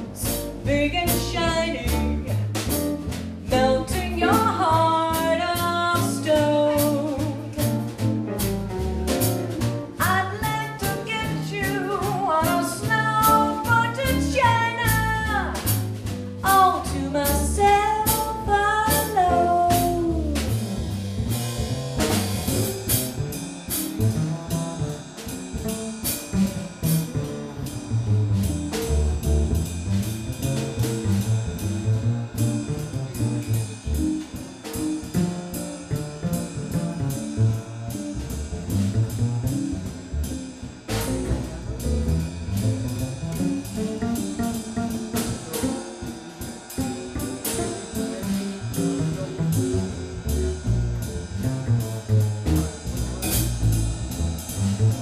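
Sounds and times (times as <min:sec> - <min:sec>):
drum kit swing beat: 0:00.0 - 0:55.0
upright double bass: 0:00.0 - 0:55.0
guitar: 0:43.4 - 0:50.8.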